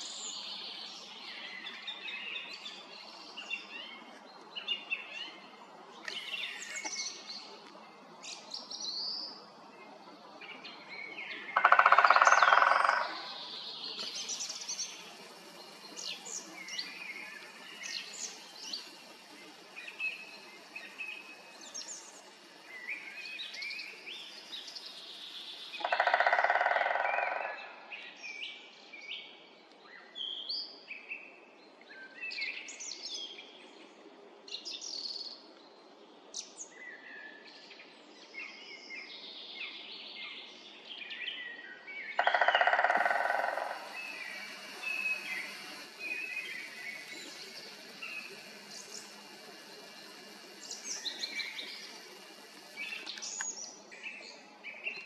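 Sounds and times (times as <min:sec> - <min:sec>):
small birds chirping: 0:00.0 - 0:26.4, 0:38.4 - 0:55.0
woodpecker drumming on tree: 0:11.5 - 0:23.2, 0:23.8 - 0:27.6, 0:42.2 - 0:53.9.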